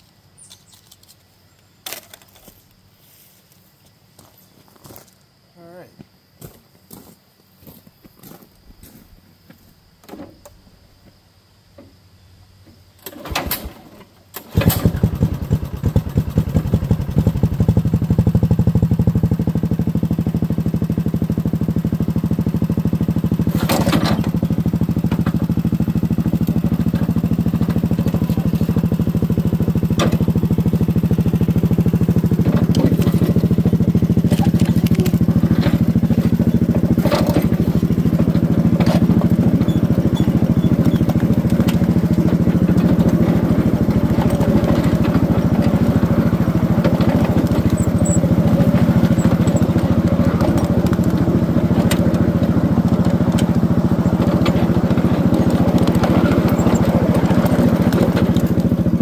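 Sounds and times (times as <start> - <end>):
small engine running: 14.4 - 59.0.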